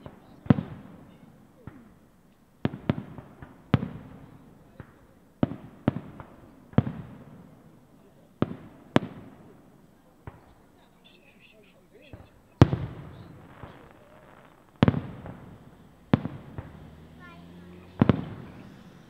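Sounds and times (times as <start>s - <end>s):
fireworks bangs: 0.0s - 19.0s
rolling echo: 0.0s - 19.0s.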